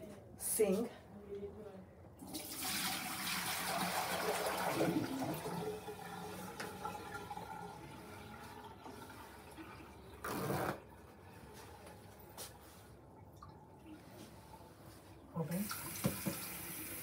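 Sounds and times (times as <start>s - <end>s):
tap water splashing into basin: 2.3s - 7.6s, 15.6s - 17.0s.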